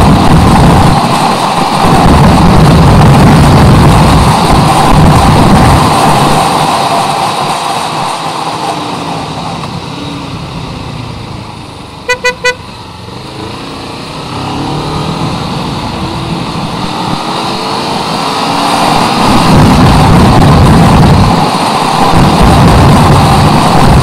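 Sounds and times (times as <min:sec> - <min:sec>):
wind noise: 0:00.0 - 0:11.5, 0:14.3 - 0:24.0
motorcycle engine: 0:00.0 - 0:24.0
horn toots: 0:12.0 - 0:12.7.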